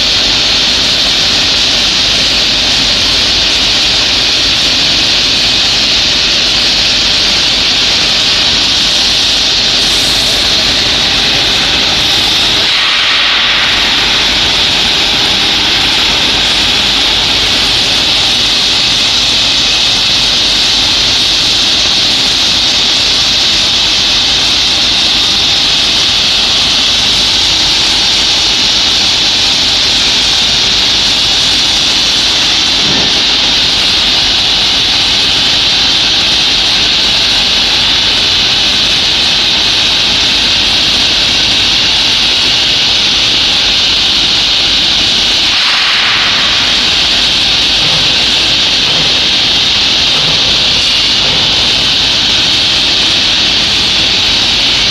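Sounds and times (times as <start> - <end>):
shot blasting machine roar: 0.0 - 22.3, 43.6 - 54.9.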